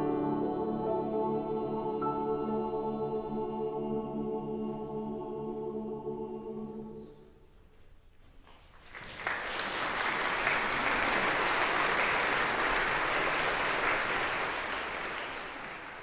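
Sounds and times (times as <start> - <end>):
audience applause: 8.8 - 16.0.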